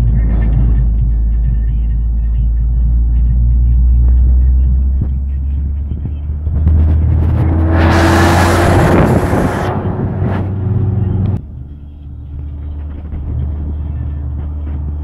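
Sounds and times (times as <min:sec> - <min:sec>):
minibus engine hum: 0:00.0 - 0:15.0
traffic noise: 0:00.0 - 0:15.0
wind rushing: 0:06.6 - 0:11.4.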